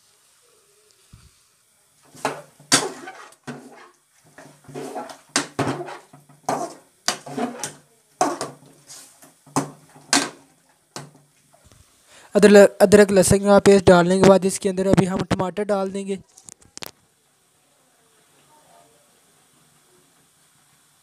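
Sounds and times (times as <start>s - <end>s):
metal ladle scraping metal pan: 2.2s - 9.0s.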